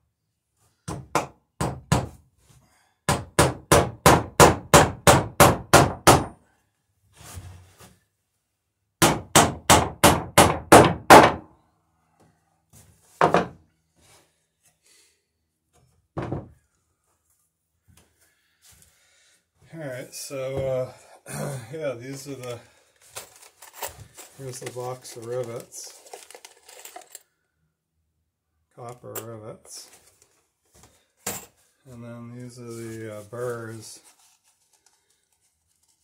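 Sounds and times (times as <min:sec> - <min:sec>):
hammer striking wooden boards: 0:00.9 - 0:02.2, 0:03.1 - 0:06.4, 0:09.0 - 0:11.5, 0:13.2 - 0:13.6.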